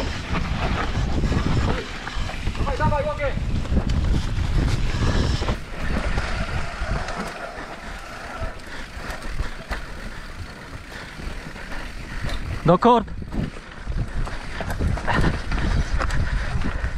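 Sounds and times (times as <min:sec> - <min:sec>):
bike tyres on ground: 0:00.0 - 0:16.9
wind rumble on microphone: 0:00.0 - 0:16.9.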